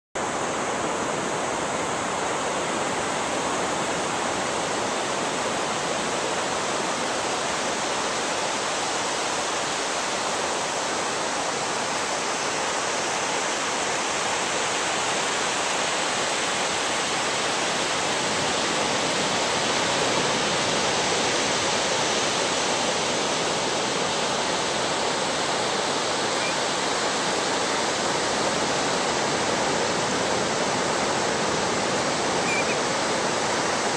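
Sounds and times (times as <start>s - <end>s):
ocean surf breaking: 17.6s - 33.9s.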